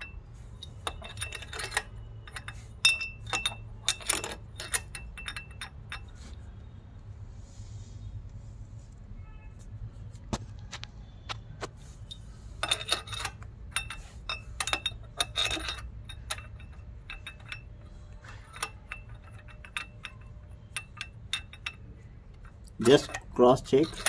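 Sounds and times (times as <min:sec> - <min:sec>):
metal bolts clinking: 0:00.0 - 0:06.4, 0:11.9 - 0:24.0.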